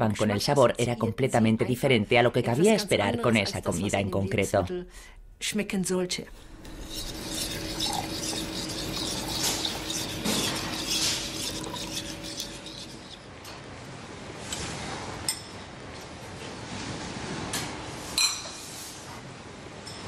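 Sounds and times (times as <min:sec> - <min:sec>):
low hum: 0:06.3 - 0:13.3.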